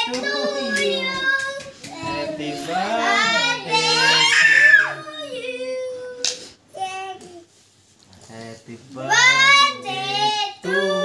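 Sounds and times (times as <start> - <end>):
children singing and calling out: 0.0 - 7.4, 9.0 - 11.0
child high-pitched squeal: 4.0 - 5.4.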